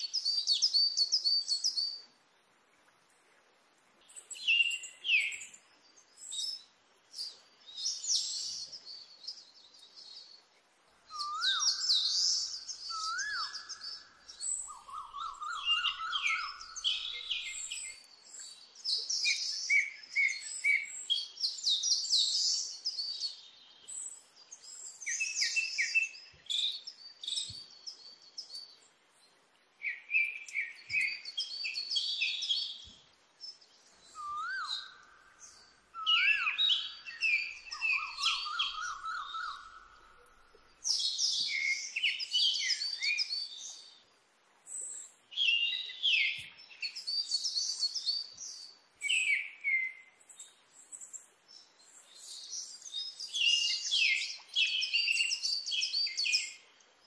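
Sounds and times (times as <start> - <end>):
birds chirping and singing: 11.1 - 28.8, 29.9 - 44.0, 44.8 - 56.7
bird whistles swooping up: 34.2 - 34.8.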